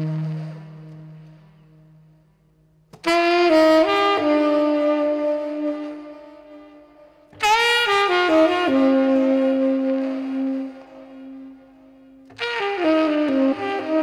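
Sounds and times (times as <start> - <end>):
tenor saxophone playing: 0.0 - 2.2, 3.0 - 14.0.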